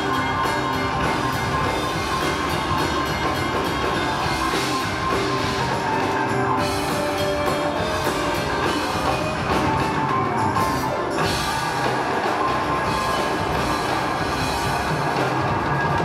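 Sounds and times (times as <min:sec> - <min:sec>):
live rock and roll band: 0:00.0 - 0:16.0.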